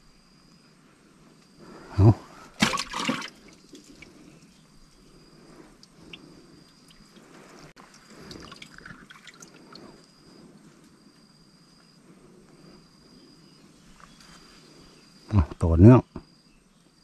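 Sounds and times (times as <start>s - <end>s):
high insect trill: 0.0s - 17.0s
water dripping and trickling: 5.8s - 9.8s.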